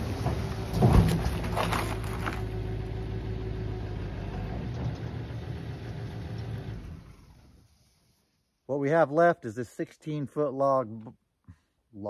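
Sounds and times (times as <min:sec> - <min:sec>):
vehicle engine idling: 0:00.0 - 0:08.0.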